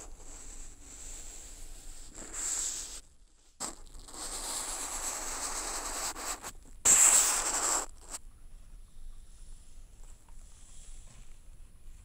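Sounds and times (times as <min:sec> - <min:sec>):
ink brush scratching on paper: 0:00.0 - 0:08.2.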